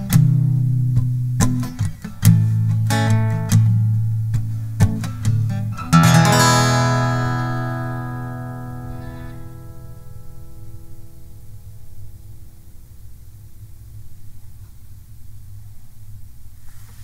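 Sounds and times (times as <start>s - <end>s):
acoustic guitar picking: 0.0s - 12.9s
guitar chord strummed: 0.0s - 12.9s.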